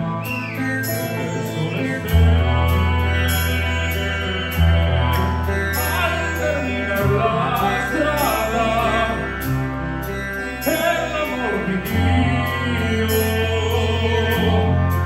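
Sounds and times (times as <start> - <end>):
band playing long bass notes: 0.0 - 15.0
man singing operatically: 1.0 - 2.2, 5.8 - 9.4, 10.6 - 15.0.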